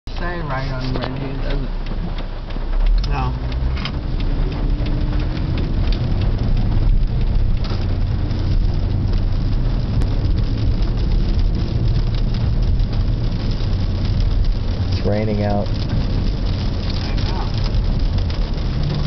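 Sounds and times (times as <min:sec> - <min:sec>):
engine and tyre hum: 0:00.1 - 0:19.0
rain hiss on car: 0:00.1 - 0:19.0.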